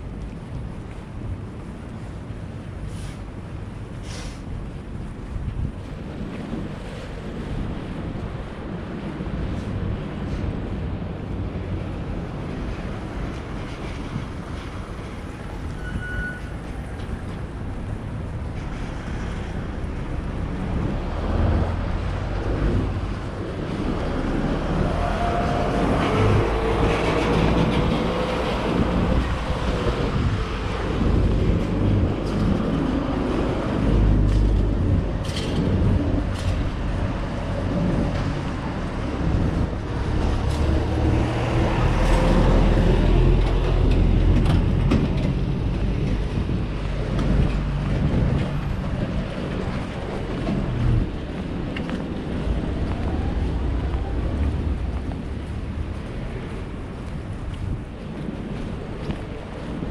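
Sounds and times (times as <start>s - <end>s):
vehicle engines passing: 16.4s - 59.9s.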